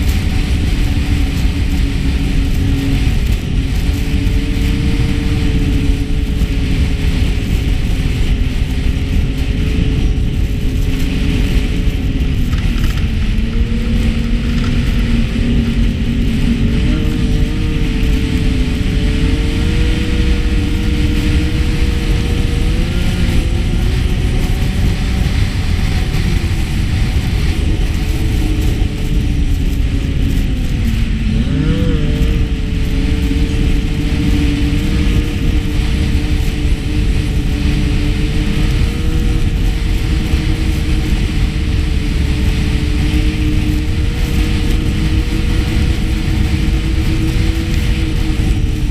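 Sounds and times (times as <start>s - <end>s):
snowmobile engine running: 0.0s - 48.9s.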